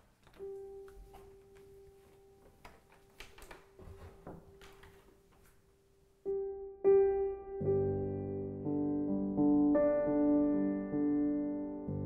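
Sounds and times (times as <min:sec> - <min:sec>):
faint clicks and rustles: 0:00.0 - 0:05.8.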